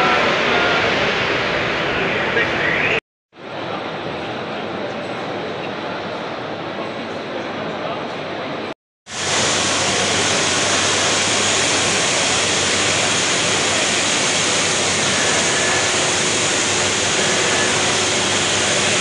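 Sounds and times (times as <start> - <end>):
steady machinery roar: 0.0 - 3.0, 9.1 - 19.0.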